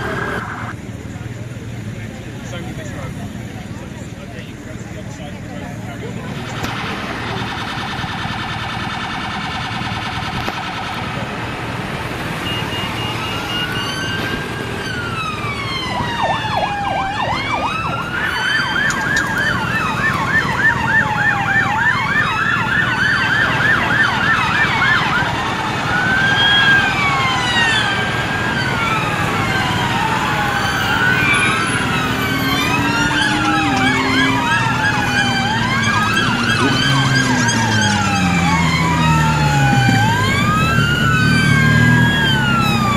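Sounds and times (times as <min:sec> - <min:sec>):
fast siren yelp: 0:00.0 - 0:00.7, 0:06.4 - 0:42.9
police sirens wailing: 0:00.0 - 0:00.8, 0:04.5 - 0:42.9
pulsing warning tone: 0:12.4 - 0:16.2, 0:30.0 - 0:40.6.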